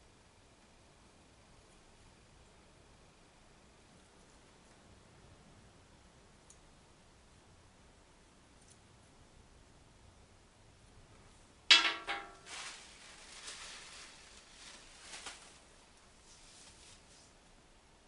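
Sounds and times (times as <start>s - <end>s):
tissue rustling: 12.0s - 17.3s.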